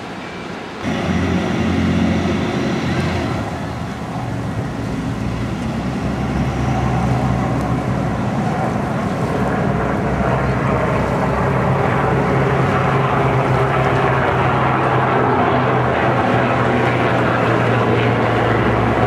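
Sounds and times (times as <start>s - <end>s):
churning propeller wash: 0.0s - 19.0s
ferry engines humming: 0.0s - 19.0s.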